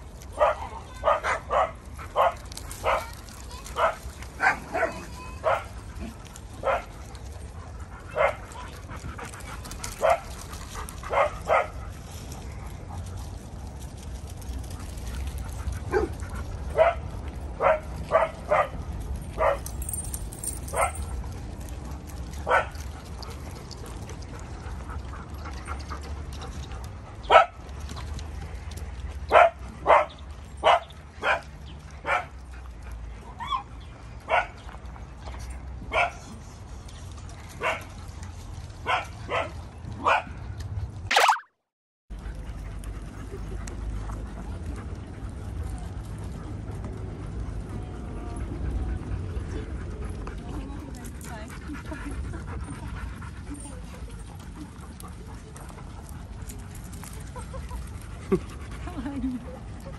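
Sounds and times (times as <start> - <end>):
dogs barking: 0.4 - 3.1, 8.1 - 8.6, 11.0 - 11.8, 15.9 - 19.7, 22.4 - 22.9, 27.2 - 27.6, 29.3 - 32.4.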